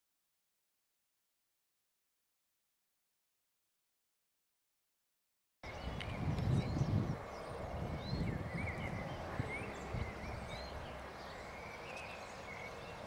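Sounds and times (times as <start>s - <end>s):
birds chirping: 5.6s - 13.0s
low outdoor rumble: 5.7s - 13.0s.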